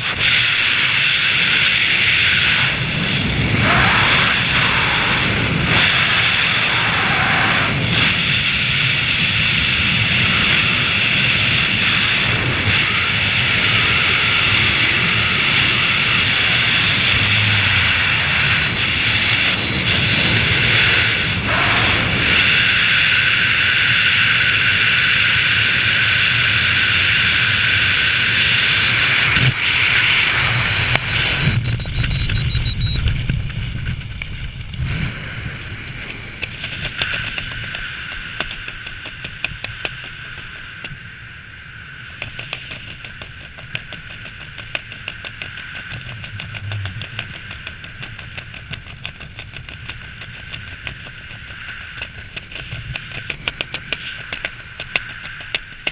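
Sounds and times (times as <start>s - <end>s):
wind rushing over microphone: 0.0s - 55.9s
parachute fluttering: 44.3s - 55.8s.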